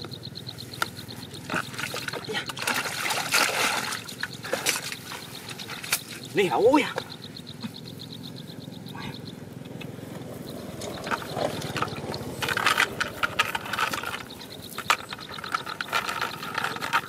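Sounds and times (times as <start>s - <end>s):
fish splashing in a bucket: 1.4s - 6.2s.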